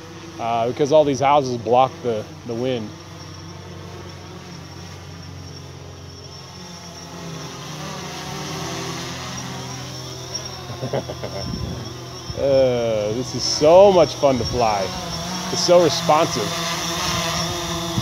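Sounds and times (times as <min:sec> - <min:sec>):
drone propellers buzzing: 0:00.0 - 0:18.0
person speaking: 0:12.4 - 0:16.6.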